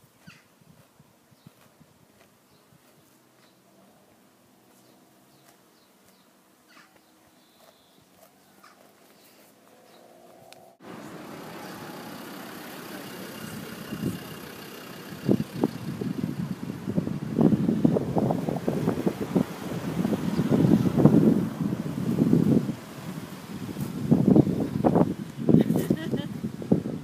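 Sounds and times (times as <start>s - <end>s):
bird chirps: 0.2s - 0.5s, 4.8s - 10.2s
roadside traffic rush: 1.6s - 27.0s
distant engine hum: 2.3s - 27.0s
wind on microphone: 15.1s - 27.0s.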